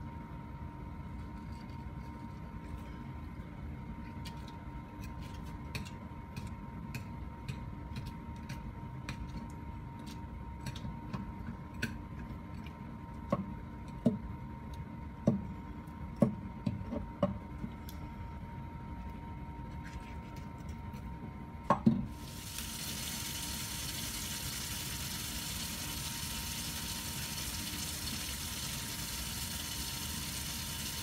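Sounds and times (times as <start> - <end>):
steady hum: 21.2 - 31.0.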